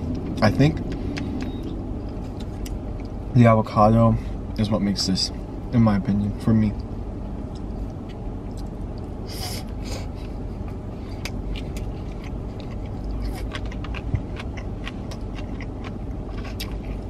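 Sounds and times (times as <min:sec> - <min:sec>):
person chewing: 0:00.0 - 0:03.2, 0:07.5 - 0:17.0
low background hum: 0:00.0 - 0:17.0.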